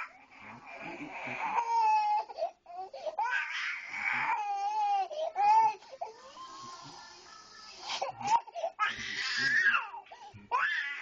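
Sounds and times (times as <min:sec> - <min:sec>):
toddler crying: 0:01.6 - 0:06.7.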